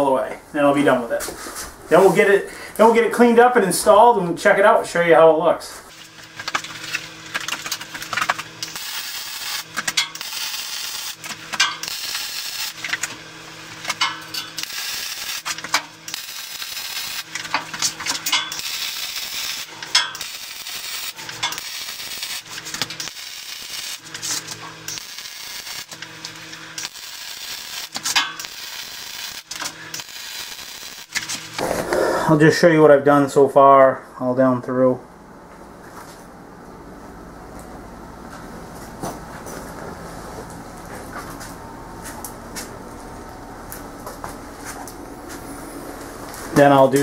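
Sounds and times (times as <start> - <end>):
welder crackling and hissing: 5.7 - 32.4
welder humming: 5.8 - 32.8.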